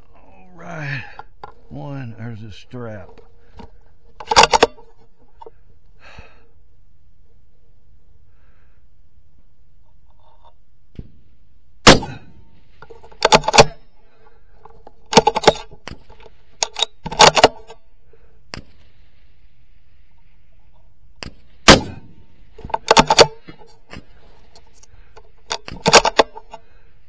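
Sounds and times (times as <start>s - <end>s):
metallic clacks of rifle bolt: 1.0s - 1.7s, 2.8s - 5.6s, 9.8s - 10.6s, 11.9s - 17.8s, 20.0s - 27.0s
rifle shots: 11.8s - 12.4s, 21.6s - 23.5s.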